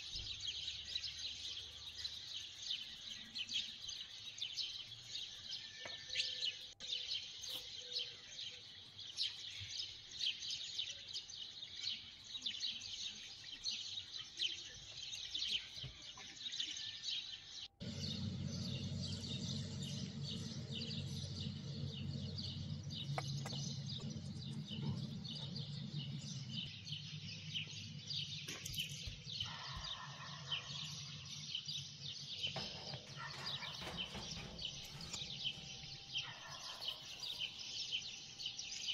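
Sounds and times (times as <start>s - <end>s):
birds chirping: 0.0s - 38.9s
low steady hum: 17.8s - 38.9s.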